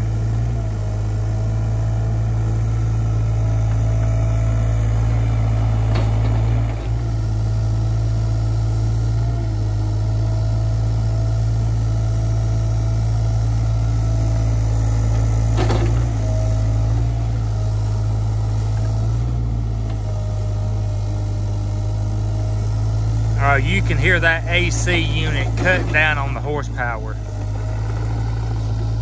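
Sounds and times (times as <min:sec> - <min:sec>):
excavator diesel engine running: 0:00.0 - 0:29.0
hydraulic whine: 0:13.8 - 0:29.0
short clunk: 0:15.5 - 0:16.1.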